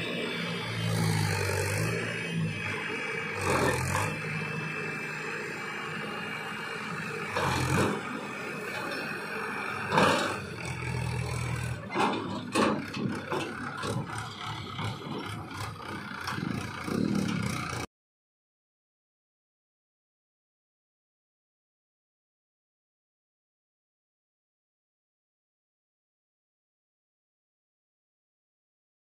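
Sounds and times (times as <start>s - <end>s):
tractor diesel engine running: 0.0s - 17.9s.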